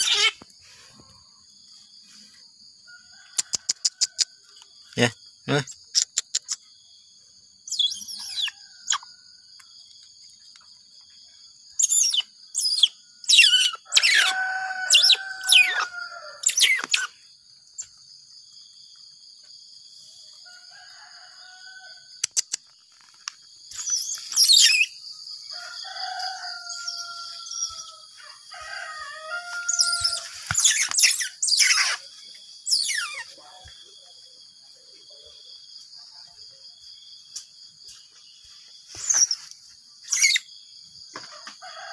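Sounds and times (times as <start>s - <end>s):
baby otter squeaking: 0.0s - 0.4s, 11.8s - 14.3s, 29.9s - 32.0s, 32.7s - 33.2s.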